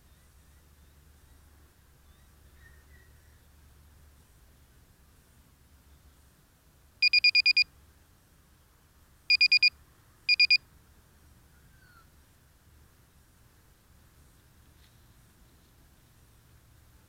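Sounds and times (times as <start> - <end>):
rapid electronic beeps: 7.0 - 7.6, 9.3 - 9.7, 10.3 - 10.6.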